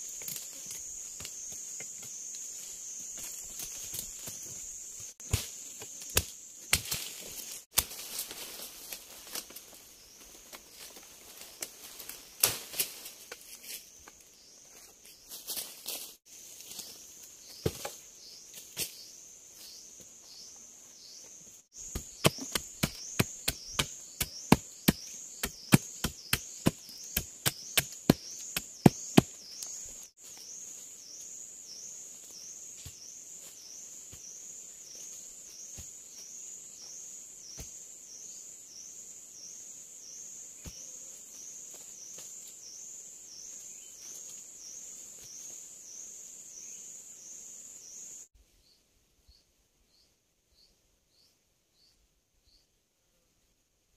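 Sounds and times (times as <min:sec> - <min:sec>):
insects calling: 0:00.0 - 0:48.8
chopping blows on wood: 0:21.8 - 0:29.4.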